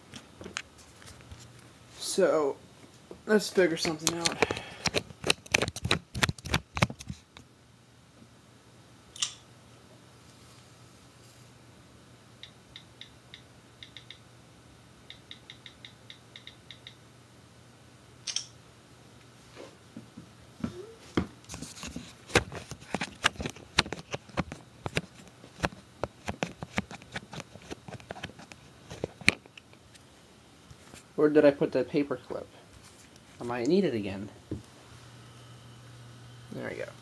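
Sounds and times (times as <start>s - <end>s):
faint steady hum: 0.0s - 37.0s
hands handling things: 21.1s - 30.1s.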